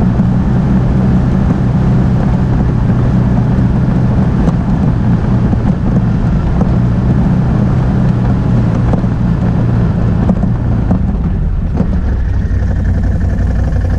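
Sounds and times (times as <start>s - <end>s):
atv engine running: 0.0s - 13.9s
wind on microphone: 0.0s - 13.9s.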